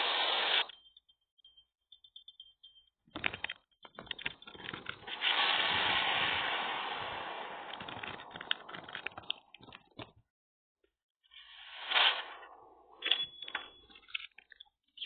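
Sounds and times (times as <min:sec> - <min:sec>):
cartoon lava crackling: 0:00.0 - 0:00.7, 0:05.0 - 0:10.0, 0:11.3 - 0:13.0.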